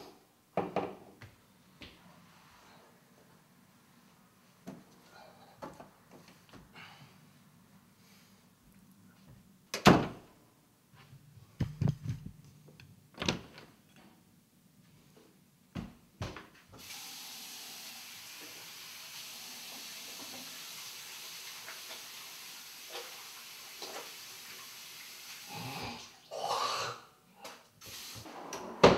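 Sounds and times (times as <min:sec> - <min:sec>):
steady hiss: 0:16.8 - 0:26.4, 0:27.8 - 0:28.3.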